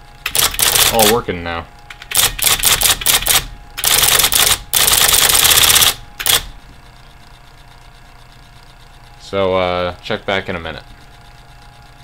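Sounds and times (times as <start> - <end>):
faint motor hum: 0.0 - 12.0
typewriter printing clatter: 0.2 - 1.2, 1.9 - 6.5.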